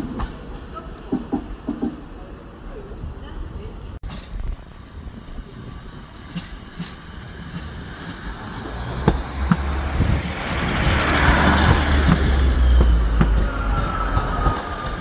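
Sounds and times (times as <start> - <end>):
train rumble: 0.0 - 15.0
wheels clanking over rail joints: 4.0 - 15.0.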